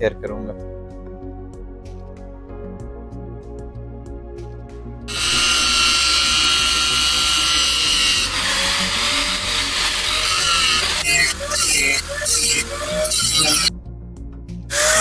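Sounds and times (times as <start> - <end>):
background music: 0.0 - 15.0
angle grinder cutting steel: 5.1 - 13.7, 14.7 - 15.0.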